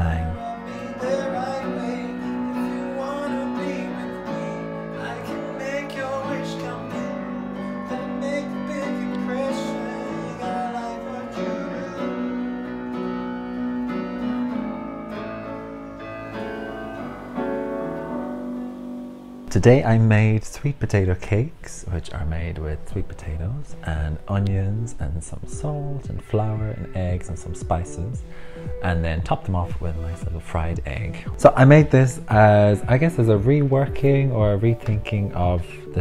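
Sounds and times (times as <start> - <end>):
man singing: 0.0 - 13.0, 23.8 - 36.0
electronic keyboard chords: 0.0 - 19.6, 25.3 - 36.0.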